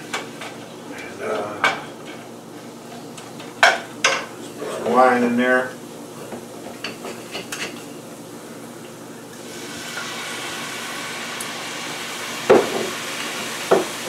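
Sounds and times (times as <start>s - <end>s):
wine sizzling in a hot pan: 9.1s - 14.0s.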